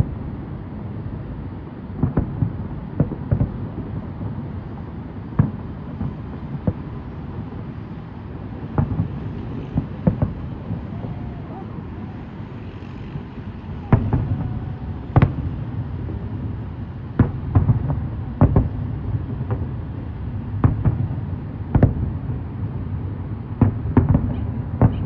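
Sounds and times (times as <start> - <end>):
fireworks bangs: 1.9 - 22.6, 23.4 - 25.0
low rumble: 8.6 - 19.5.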